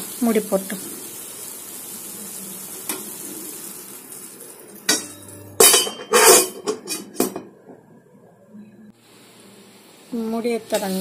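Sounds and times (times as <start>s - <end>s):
food sizzling in a pan: 0.0s - 5.4s, 9.0s - 11.0s.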